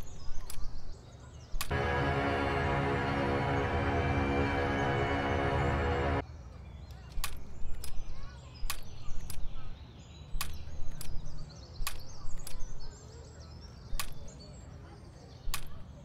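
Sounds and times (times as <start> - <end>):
tense background music: 1.7 - 6.2.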